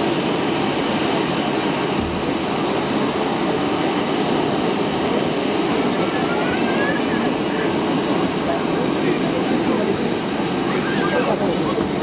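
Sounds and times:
jet engines rushing: 0.0s - 12.0s.

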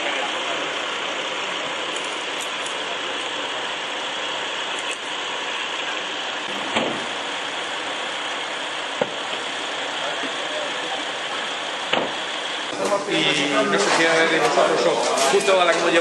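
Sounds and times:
ambulance engine idling: 0.0s - 16.0s.

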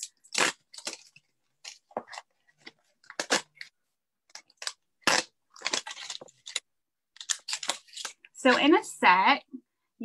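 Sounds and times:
packet crinkling and tearing: 4.3s - 8.3s.

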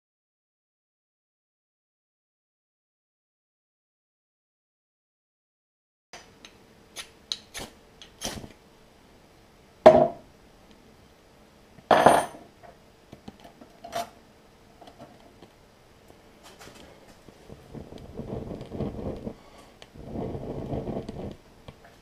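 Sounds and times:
metal knocks on bench: 9.9s - 10.2s, 11.9s - 12.4s.

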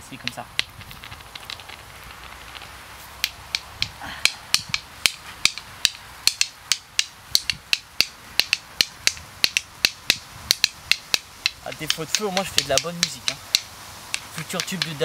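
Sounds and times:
flint stones clicking together: 0.2s - 15.0s.

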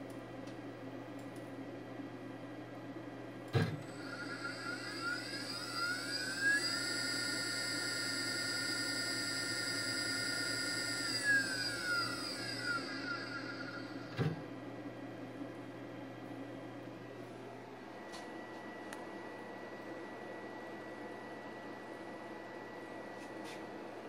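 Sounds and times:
stepper motors whining: 3.6s - 14.4s.

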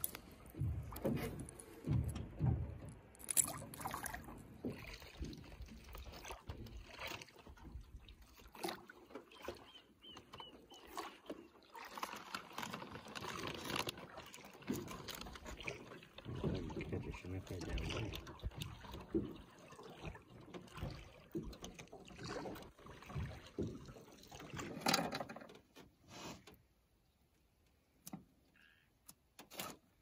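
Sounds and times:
fishing gear knocking and clicking: 0.0s - 4.0s
water against boat hull: 0.0s - 30.0s.

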